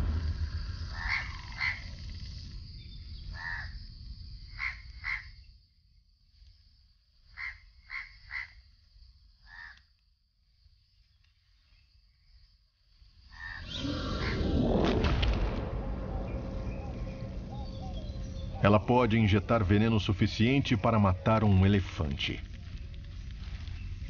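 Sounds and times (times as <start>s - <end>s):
low rumble: 0.0s - 2.9s, 13.6s - 24.0s
low thump: 14.3s - 19.6s.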